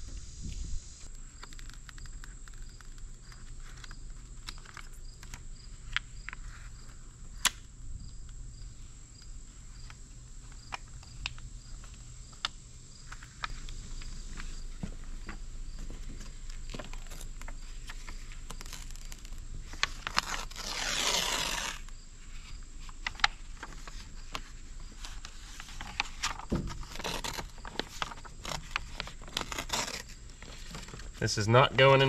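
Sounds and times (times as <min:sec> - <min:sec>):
paper liner peeling off vinyl: 0:01.0 - 0:06.8, 0:16.5 - 0:31.2
paper crinkling: 0:01.0 - 0:07.5, 0:15.8 - 0:31.3.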